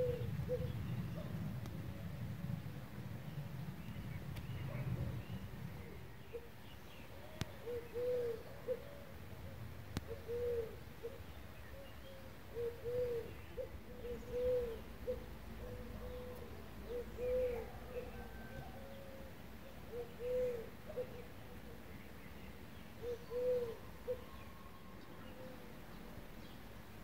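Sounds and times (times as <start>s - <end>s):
dove cooing: 0.0s - 2.0s, 5.8s - 21.9s, 23.0s - 25.9s.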